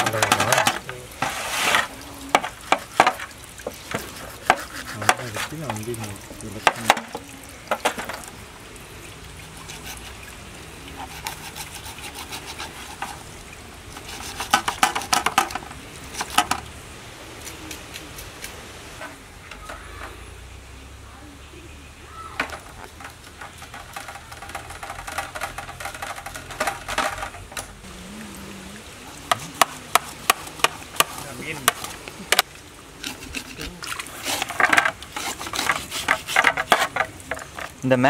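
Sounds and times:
knife scraping fish scales: 3.9 - 5.6, 9.6 - 10.2, 11.0 - 13.2, 13.9 - 15.2, 33.0 - 37.0.

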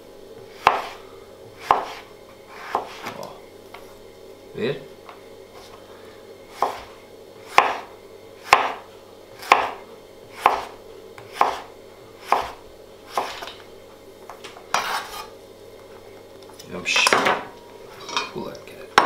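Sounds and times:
knife slicing on cutting board: 0.6 - 1.0, 1.6 - 3.1, 6.5 - 7.9, 10.4 - 13.5, 14.7 - 15.3.

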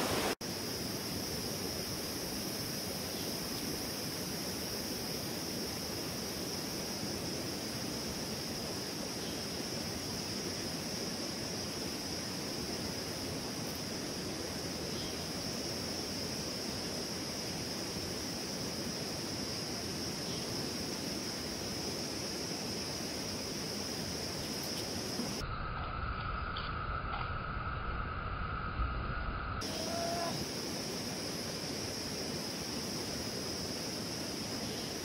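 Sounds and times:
river water rushing: 0.0 - 0.4
high-pitched insect drone: 0.5 - 35.0.

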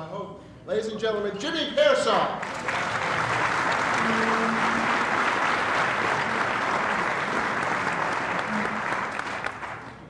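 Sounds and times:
audience applauding: 2.4 - 10.0.

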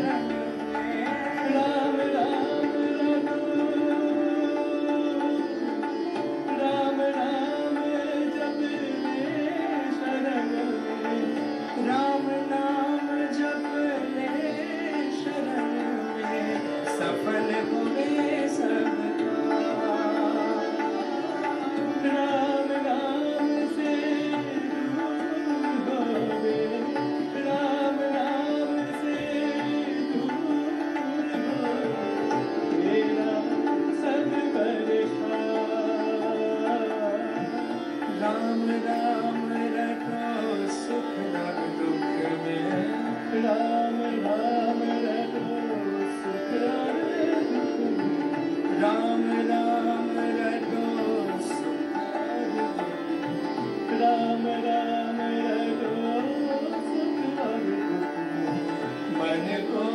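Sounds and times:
harmonium: 0.0 - 59.9
tabla: 0.0 - 59.9
tanpura drone: 0.0 - 59.9
men singing: 48.7 - 51.9, 58.4 - 59.9.

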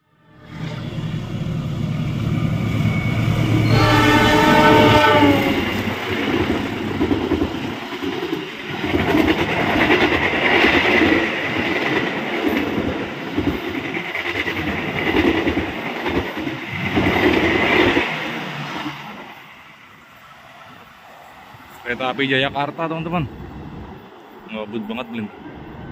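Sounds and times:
train wheels clattering over rails: 5.8 - 19.0.

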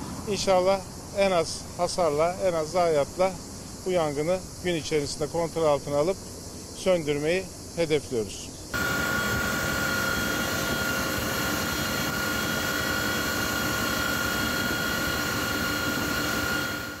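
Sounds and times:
helicopter in flight: 8.8 - 17.0.

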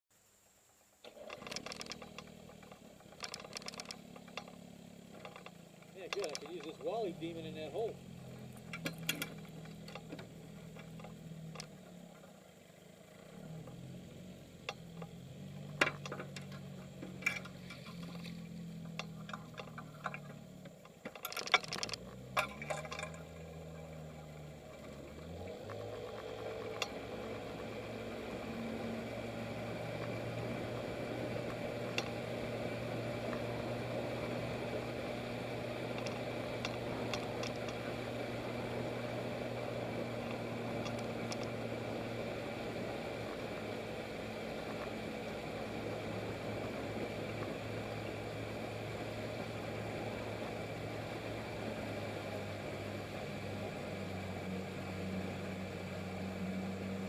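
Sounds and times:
outboard motor running: 1.0 - 57.0
clicks and knocks: 1.1 - 6.9, 15.7 - 23.3.

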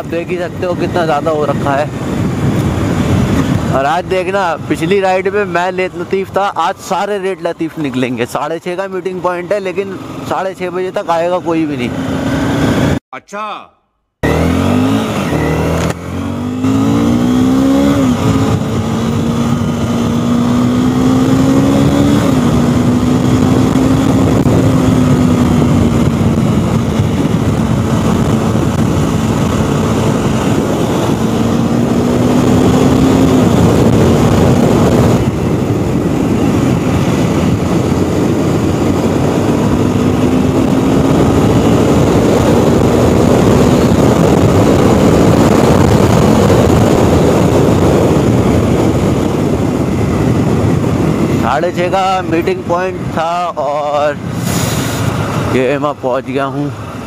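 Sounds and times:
wind rush on microphone: 0.0 - 13.0, 14.3 - 57.0
motorcycle engine pulling away: 14.2 - 51.0.

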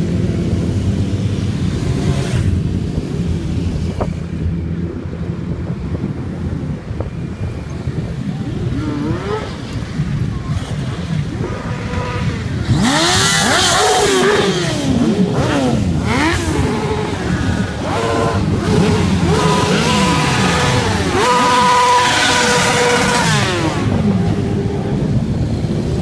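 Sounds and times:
motorcycles revving past: 8.6 - 26.0.

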